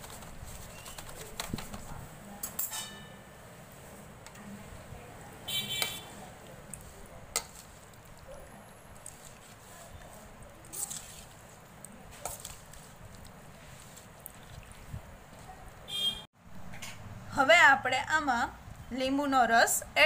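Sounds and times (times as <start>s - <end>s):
soft squishing of potatoes: 0.0s - 2.2s, 3.8s - 16.1s
spoon clinking on steel bowl: 2.4s - 3.2s.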